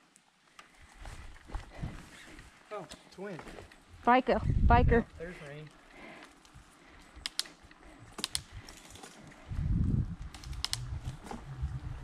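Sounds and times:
wind buffeting microphone: 0:04.3 - 0:05.3, 0:09.3 - 0:12.0
faint riding noise: 0:05.0 - 0:12.0.

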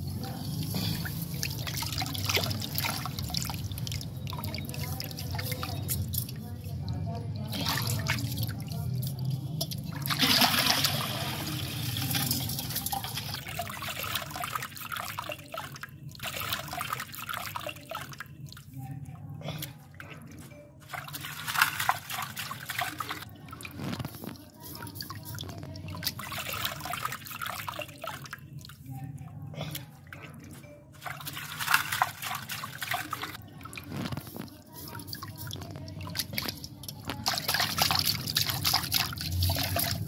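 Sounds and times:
water sloshing in a steel bowl: 0:00.0 - 0:40.0
water pouring into a tub: 0:00.2 - 0:06.4, 0:09.7 - 0:18.3, 0:20.9 - 0:24.1, 0:25.0 - 0:28.4, 0:31.0 - 0:34.3, 0:35.2 - 0:40.0.

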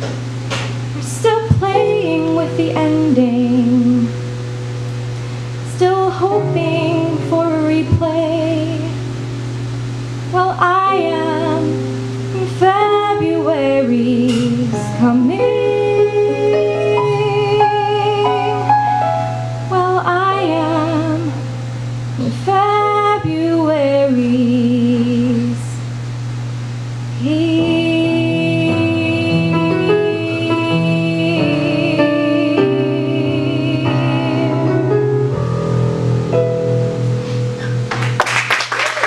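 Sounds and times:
piano chords: 0:00.0 - 0:38.8
woman singing with vibrato: 0:00.9 - 0:04.3, 0:05.6 - 0:09.3, 0:10.3 - 0:19.1, 0:19.7 - 0:21.6, 0:22.2 - 0:25.9, 0:27.1 - 0:35.1.

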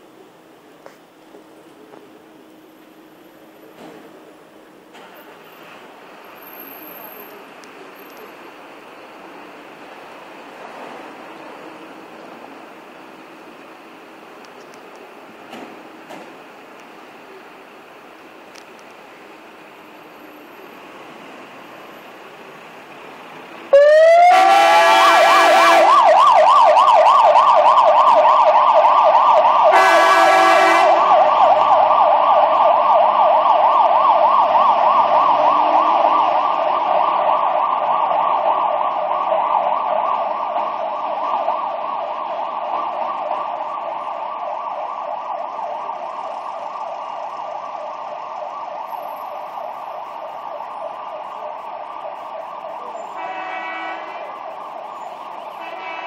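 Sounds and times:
fire engine siren warbling: 0:01.7 - 0:56.0
air horn blasts: 0:24.0 - 0:26.0, 0:29.7 - 0:31.1, 0:53.1 - 0:54.4, 0:55.6 - 0:56.0.

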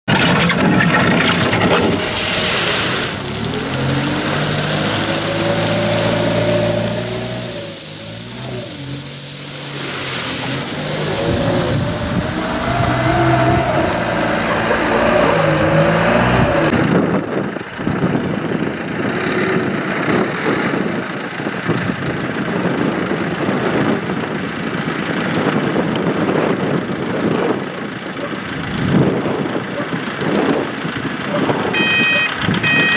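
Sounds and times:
wheel loader engine revving: 0:00.0 - 0:21.1
rough rattling machine noise: 0:00.1 - 0:16.9.

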